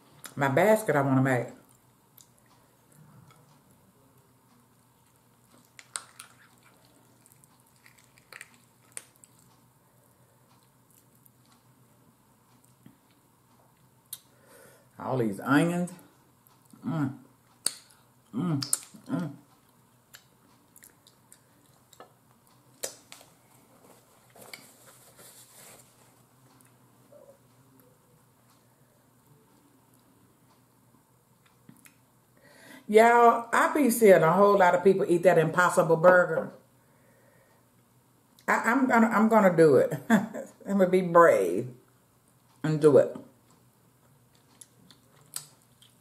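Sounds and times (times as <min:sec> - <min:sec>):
soft eating clicks and smacks: 0:01.5 - 0:14.4, 0:16.0 - 0:24.9, 0:26.0 - 0:32.4, 0:41.9 - 0:42.6, 0:43.3 - 0:46.0
chewing chicken: 0:01.6 - 0:09.7, 0:17.5 - 0:24.7, 0:43.5 - 0:46.0
small sharp wet clicks: 0:05.6 - 0:09.6, 0:44.3 - 0:46.0
napkin rustle: 0:23.6 - 0:26.3.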